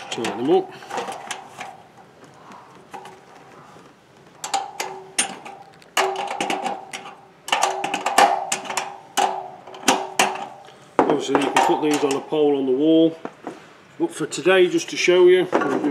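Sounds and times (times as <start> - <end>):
metal ringing: 4.4 - 12.5.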